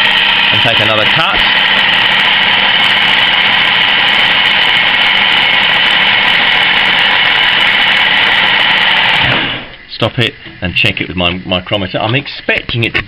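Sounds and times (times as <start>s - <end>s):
lathe whining: 0.0s - 10.0s.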